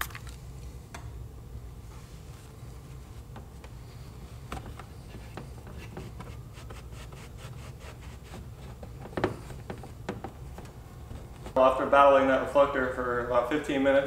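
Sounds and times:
low steady hum: 0.0 - 14.0
towel rubbing plastic: 4.6 - 11.9.

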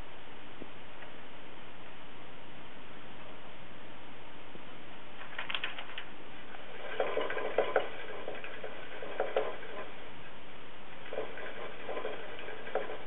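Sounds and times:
hamster cage clicks and rattles: 5.2 - 10.0, 10.9 - 13.0.

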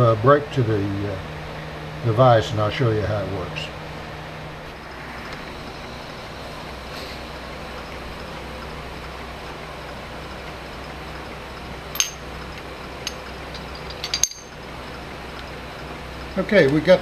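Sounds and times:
workshop background hum: 0.0 - 17.0
metallic clink: 11.9 - 14.6.

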